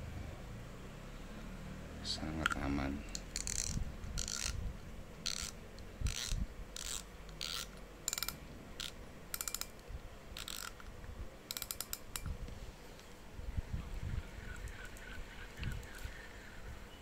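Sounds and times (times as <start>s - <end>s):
fishing reel ratcheting clicks: 2.4s - 4.6s, 5.2s - 9.8s, 10.4s - 10.9s, 11.5s - 12.3s.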